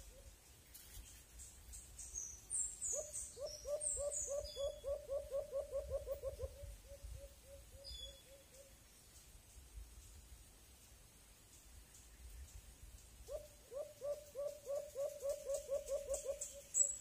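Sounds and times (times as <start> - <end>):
small bird chirping: 0.0 - 10.2, 10.9 - 17.0
dove cooing: 2.9 - 8.7, 13.3 - 17.0.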